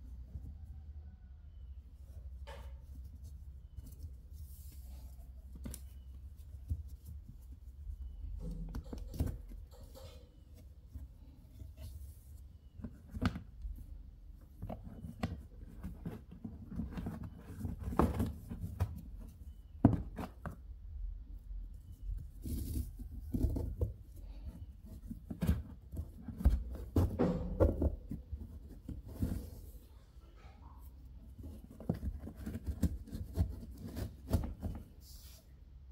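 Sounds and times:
rope rustling and scraping: 0:21.8 - 0:29.9.

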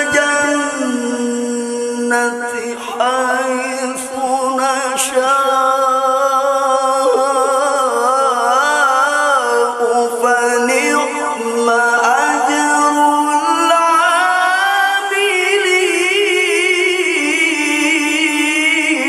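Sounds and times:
man chanting melodically: 0:00.0 - 0:19.0.

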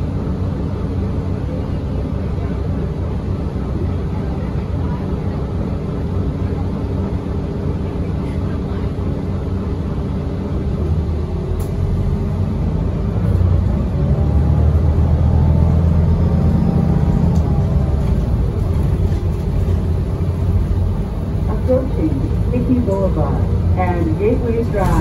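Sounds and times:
bus engine and road rumble: 0:00.0 - 0:25.0.

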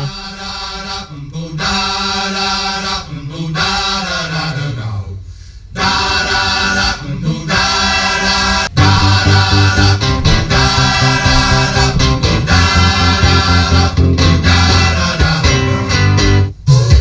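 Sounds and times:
voices singing through car stereo: 0:00.0 - 0:16.1
heavy bass: 0:05.7 - 0:17.0.

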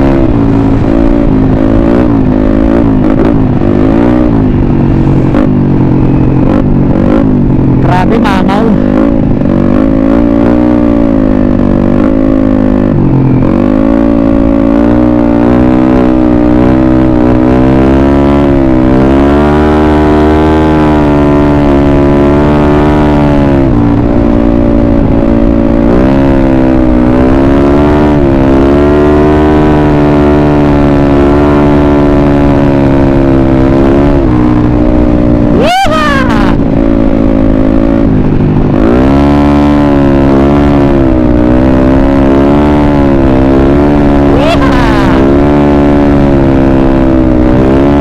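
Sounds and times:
scooter engine revving: 0:27.0 - 0:48.0.

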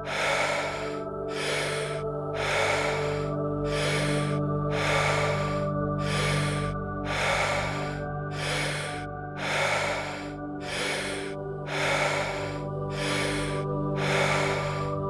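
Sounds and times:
ambient music drone: 0:00.0 - 0:15.0
rapid deep breathing: 0:00.0 - 0:15.0.

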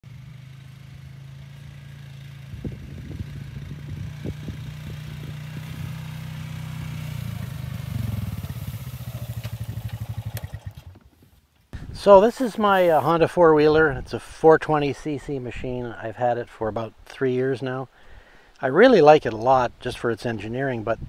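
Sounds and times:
atv engine running: 0:00.0 - 0:11.2.

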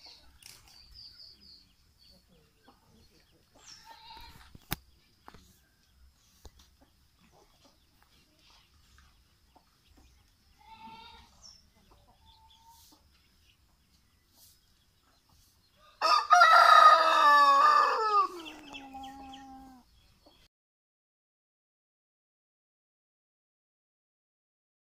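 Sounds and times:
rooster crowing: 0:15.8 - 0:19.5.

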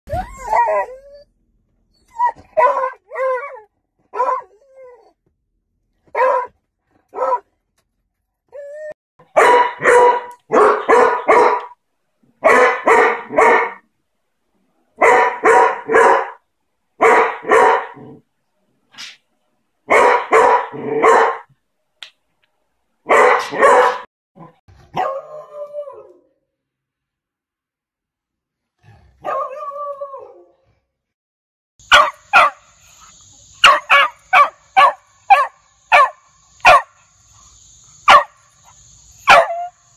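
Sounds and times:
dogs barking: 0:02.5 - 0:03.5, 0:04.1 - 0:04.5, 0:06.1 - 0:07.5, 0:09.2 - 0:11.8, 0:12.4 - 0:13.8, 0:15.0 - 0:16.4, 0:17.0 - 0:18.2, 0:19.9 - 0:21.5, 0:23.1 - 0:24.1, 0:31.8 - 0:32.7, 0:33.6 - 0:37.0, 0:38.1 - 0:38.4, 0:39.3 - 0:39.8
drawn-out falling bark: 0:06.1 - 0:07.5, 0:09.2 - 0:11.8, 0:12.4 - 0:13.9, 0:15.0 - 0:16.4, 0:17.0 - 0:18.2, 0:19.9 - 0:21.5, 0:23.0 - 0:24.1, 0:31.8 - 0:39.9.

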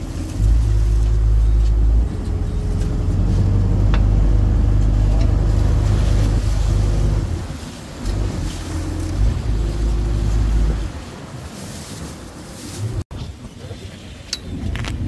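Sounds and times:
boat engine running: 0:00.0 - 0:11.6
wind rumble on microphone: 0:00.0 - 0:15.0.

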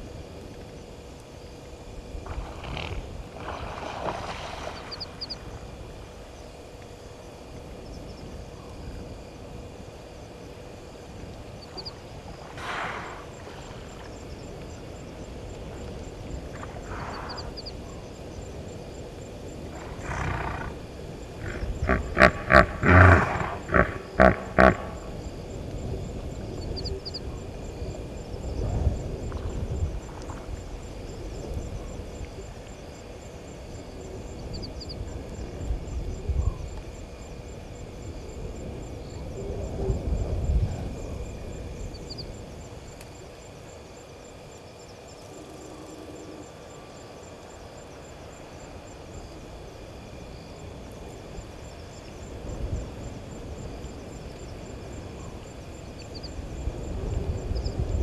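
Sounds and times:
breathy animal calls: 0:21.4 - 0:25.1
hippopotamus honking: 0:21.4 - 0:25.1.

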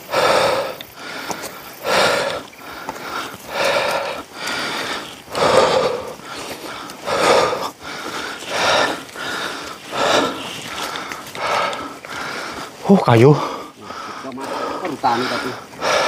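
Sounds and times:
person breathing hard: 0:00.0 - 0:16.0.

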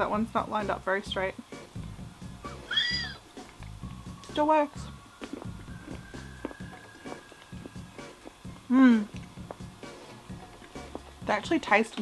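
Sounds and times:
quiet background music: 0:00.0 - 0:12.0.

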